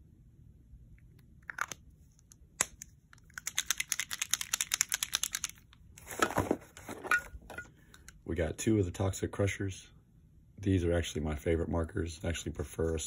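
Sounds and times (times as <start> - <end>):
crinkly packaging rustling: 3.2 - 7.5
hands rummaging in cardboard box: 6.0 - 7.3
items knocking: 6.0 - 7.7.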